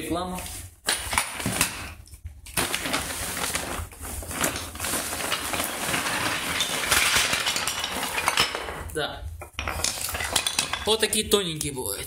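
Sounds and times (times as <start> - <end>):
antler pieces shifting: 0.9 - 8.9, 9.6 - 11.0
plastic sack rustling: 2.6 - 8.8.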